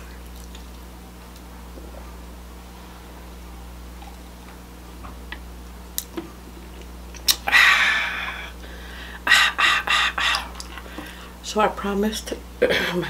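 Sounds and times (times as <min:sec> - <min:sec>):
eating sounds: 0:06.0 - 0:11.2.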